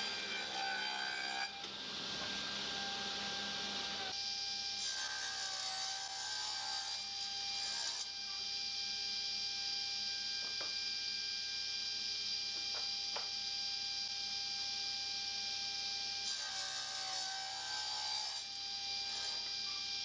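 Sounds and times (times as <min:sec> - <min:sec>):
saw cutting wood: 0:00.0 - 0:04.2, 0:04.8 - 0:08.1, 0:16.2 - 0:19.8
table saw blade whine: 0:00.0 - 0:20.0.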